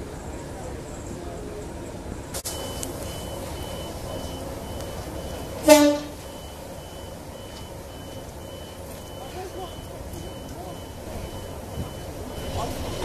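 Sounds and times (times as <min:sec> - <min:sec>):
faint high beeps: 0:02.4 - 0:13.0
train horn toot: 0:05.6 - 0:06.2.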